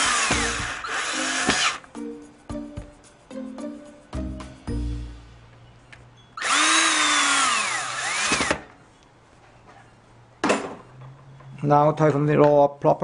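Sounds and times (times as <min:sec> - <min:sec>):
cordless drill motor whine: 0:00.0 - 0:01.8, 0:06.4 - 0:08.7.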